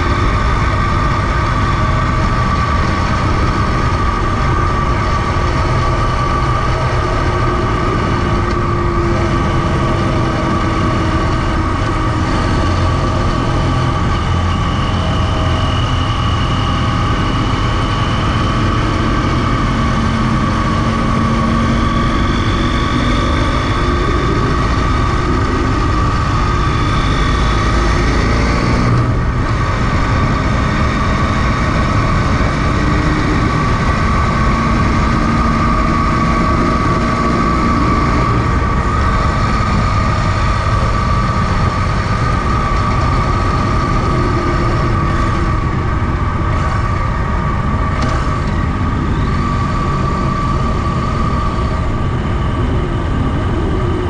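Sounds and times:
motorcycle engine running: 0:00.0 - 0:54.0
wind noise on microphone: 0:00.0 - 0:54.0.

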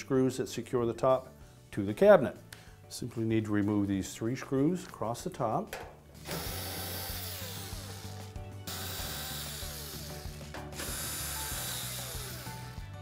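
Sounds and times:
cordless drill motor whirring: 0:06.3 - 0:12.9.

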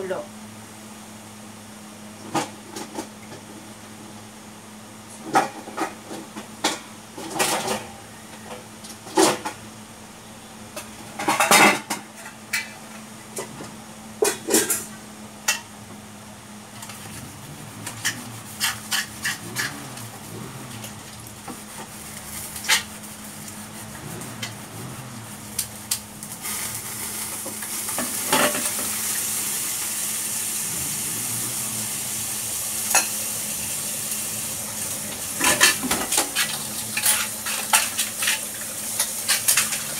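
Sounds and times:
pots and utensils clinking: 0:11.2 - 0:13.6, 0:14.2 - 0:15.8, 0:16.8 - 0:23.6, 0:26.2 - 0:30.8, 0:31.4 - 0:39.9
steady hiss: 0:16.8 - 0:39.9.

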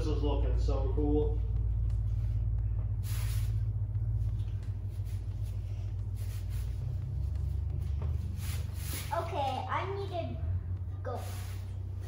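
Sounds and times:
steady low hum: 0:00.0 - 0:12.0
faint short hisses: 0:03.0 - 0:03.6.

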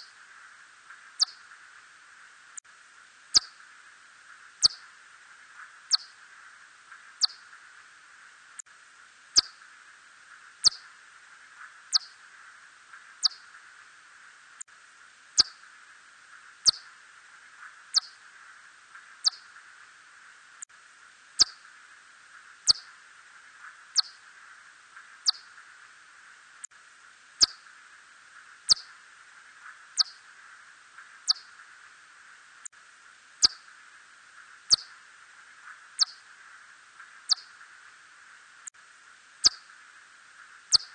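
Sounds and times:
steady hiss: 0:00.0 - 0:40.9
bat chirps: 0:01.2 - 0:01.4, 0:03.3 - 0:03.6, 0:04.6 - 0:04.9, 0:05.9 - 0:06.2, 0:07.2 - 0:07.4, 0:09.4 - 0:09.6, 0:10.6 - 0:10.9, 0:11.9 - 0:12.2, 0:13.2 - 0:13.5, 0:15.4 - 0:15.6, 0:16.6 - 0:16.9, 0:17.9 - 0:18.2, 0:19.2 - 0:19.5, 0:21.4 - 0:21.6, 0:22.7 - 0:23.0, 0:24.0 - 0:24.2, 0:25.2 - 0:25.5, 0:27.4 - 0:27.7, 0:28.7 - 0:29.0, 0:30.0 - 0:30.2, 0:31.2 - 0:31.6, 0:33.4 - 0:33.7, 0:34.7 - 0:35.0, 0:36.0 - 0:36.2, 0:37.3 - 0:37.6, 0:39.4 - 0:39.7.

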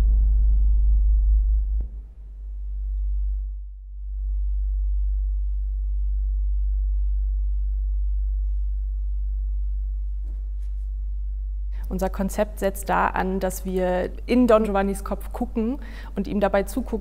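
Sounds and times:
deep low bass drone: 0:00.0 - 0:13.4.

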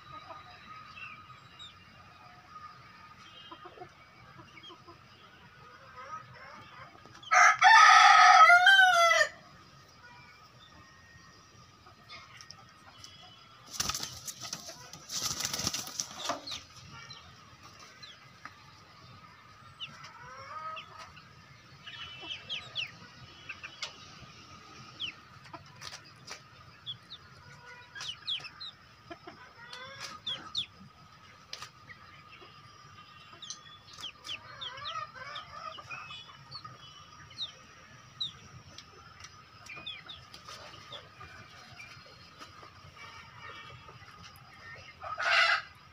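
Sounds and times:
chickens clucking: 0:00.0 - 0:45.9
wings flapping: 0:13.7 - 0:16.3.

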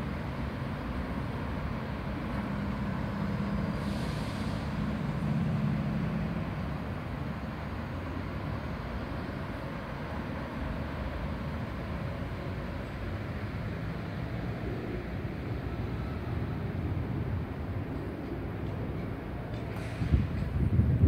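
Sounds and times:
distant city traffic rumble: 0:00.0 - 0:21.0
brief hiss: 0:03.7 - 0:04.8, 0:19.7 - 0:20.5.

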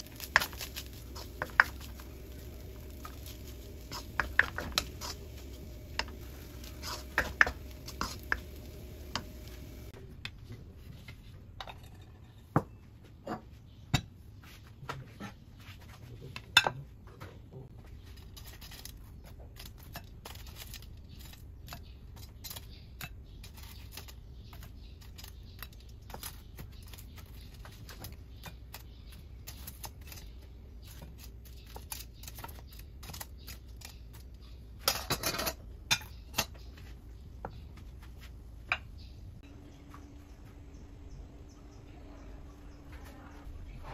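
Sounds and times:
wooden spatula scraping a pan: 0:00.0 - 0:09.9
low hum: 0:00.0 - 0:10.1, 0:39.2 - 0:43.9.

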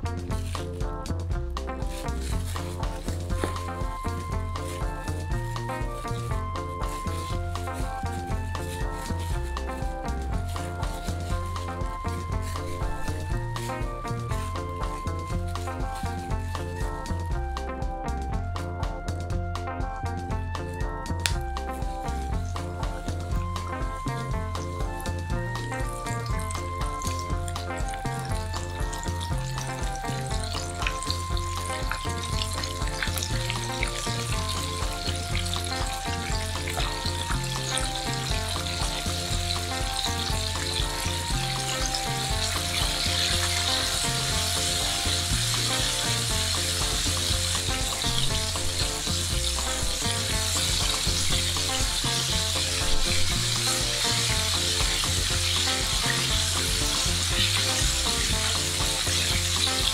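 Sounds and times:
chicken deep-frying in oil: 0:00.0 - 0:19.7, 0:20.5 - 0:59.9.

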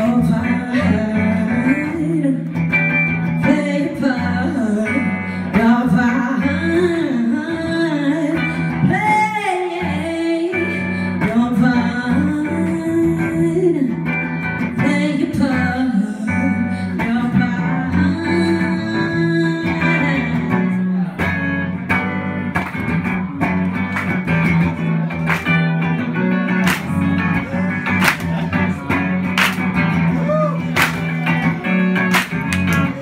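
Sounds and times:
woman singing soul song: 0:00.0 - 0:20.8
electric guitar: 0:00.0 - 0:33.0.

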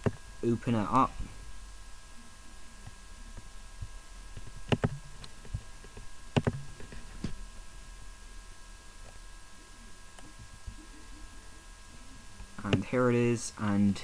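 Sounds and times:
faint electrical hum: 0:00.0 - 0:14.0
computer mouse clicking: 0:04.4 - 0:05.6, 0:06.3 - 0:07.0, 0:12.6 - 0:12.8.

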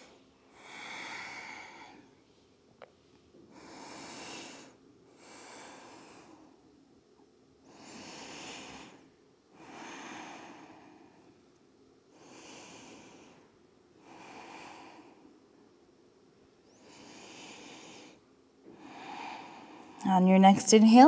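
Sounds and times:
woman breathing deeply: 0:00.0 - 0:02.2, 0:03.5 - 0:06.7, 0:07.6 - 0:11.4, 0:12.1 - 0:15.6, 0:16.6 - 0:20.0.

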